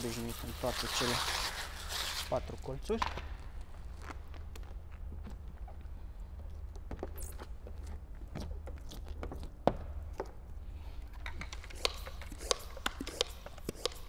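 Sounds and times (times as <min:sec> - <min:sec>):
plastic film crinkling: 0:00.0 - 0:05.1
steady low hum: 0:00.0 - 0:14.0.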